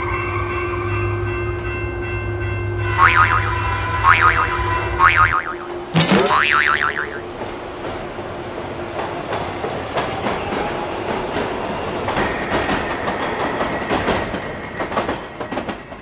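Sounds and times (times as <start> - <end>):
train wheels clicking on rails: 7.2 - 16.0.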